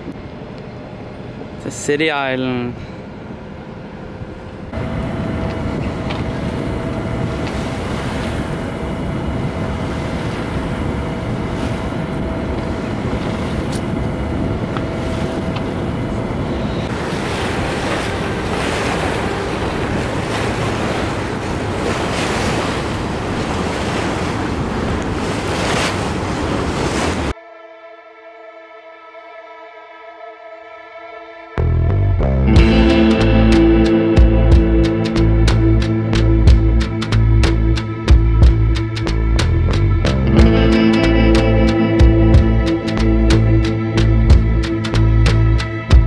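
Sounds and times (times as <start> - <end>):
water rushing past boat: 0.4 - 27.4, 32.5 - 39.5, 40.2 - 46.0
wind buffeting microphone: 4.2 - 27.3.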